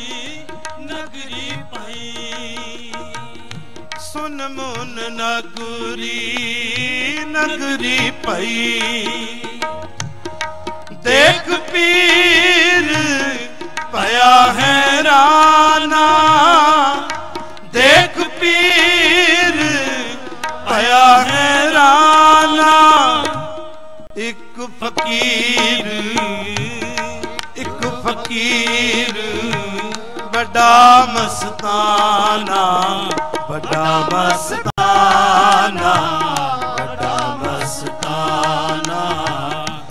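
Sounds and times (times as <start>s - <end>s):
harmonium drone and melody: 0.0s - 39.9s
tabla strokes: 0.0s - 39.9s
voices singing: 10.9s - 39.9s.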